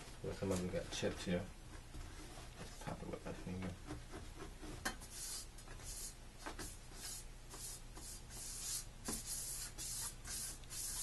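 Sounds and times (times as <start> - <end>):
hand rubbing scratchy strokes: 3.8 - 11.0.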